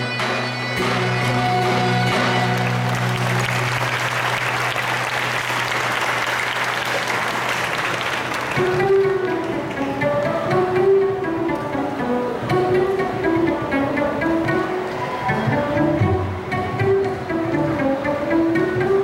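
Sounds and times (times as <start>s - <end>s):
string instruments playing: 0.0s - 19.0s
audience applauding: 2.2s - 9.8s.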